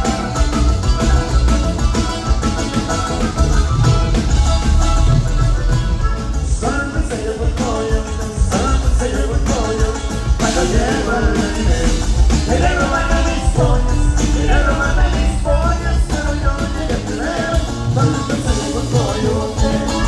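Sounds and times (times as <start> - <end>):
accordion: 0.0 - 20.0
bass and drum beat: 0.0 - 20.0
person singing: 6.5 - 20.0.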